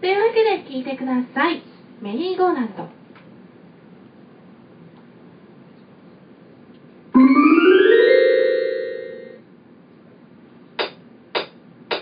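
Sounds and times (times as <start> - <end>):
synthesizer chord sweeping upward: 7.2 - 9.4.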